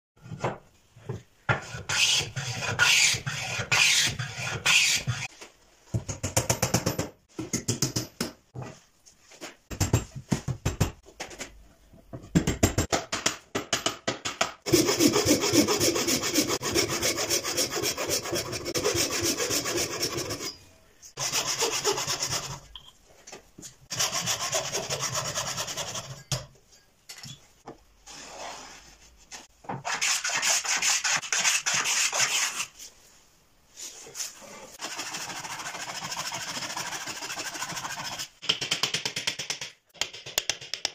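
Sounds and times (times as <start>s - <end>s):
rasping strokes on wood: 14.7s - 20.6s.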